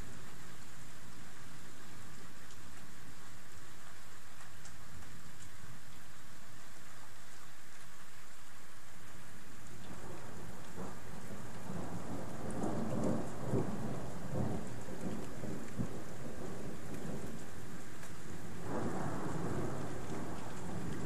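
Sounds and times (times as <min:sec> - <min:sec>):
steady rain: 0:00.0 - 0:21.0
thunder rumbling: 0:09.9 - 0:21.0.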